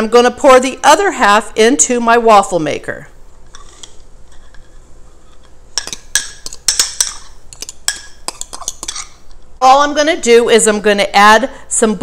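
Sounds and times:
spoon scraping glass bowl: 3.5 - 9.2.

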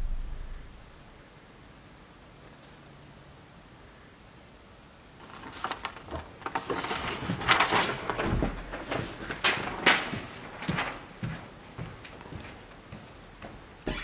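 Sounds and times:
paper rustling: 5.2 - 12.7.

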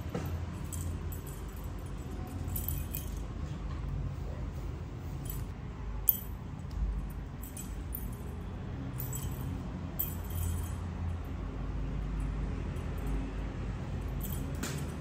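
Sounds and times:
steady low hum: 0.0 - 15.0
jingling clinks of toy: 0.4 - 3.3, 7.2 - 11.2, 14.0 - 15.0.

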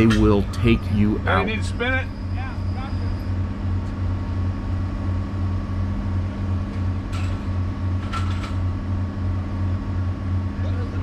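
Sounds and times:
diesel engine running: 0.0 - 7.0.

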